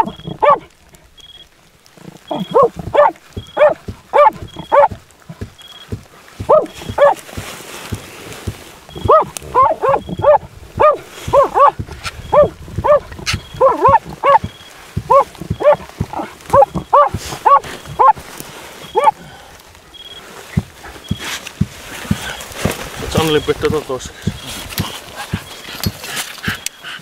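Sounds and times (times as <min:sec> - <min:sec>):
dog barking: 0:00.0 - 0:00.7, 0:02.3 - 0:05.0, 0:06.4 - 0:07.3, 0:08.9 - 0:18.2, 0:18.9 - 0:19.2.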